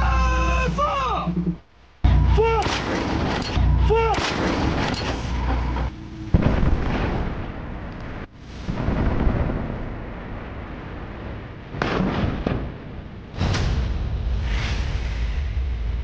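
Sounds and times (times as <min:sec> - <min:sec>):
howitzer gun blast: 0:02.2 - 0:14.2
rumbling boom of shells exploding: 0:02.6 - 0:03.6, 0:06.3 - 0:16.0.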